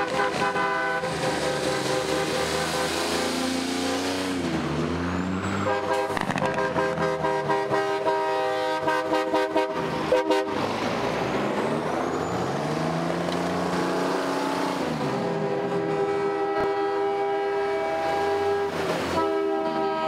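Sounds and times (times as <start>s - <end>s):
truck air horn blasts: 0.0s - 3.7s, 5.6s - 10.6s, 14.4s - 20.0s
passing truck engine drone: 0.0s - 20.0s.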